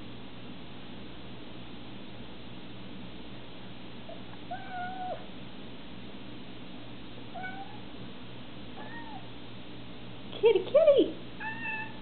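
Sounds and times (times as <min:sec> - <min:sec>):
cat meowing: 0:04.5 - 0:05.3, 0:07.4 - 0:07.9, 0:08.8 - 0:09.3, 0:11.4 - 0:12.0.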